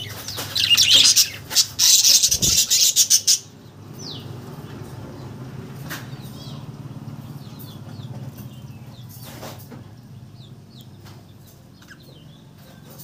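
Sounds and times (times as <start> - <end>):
budgerigars chirping: 0.0 - 5.3, 6.1 - 9.5, 10.1 - 12.9.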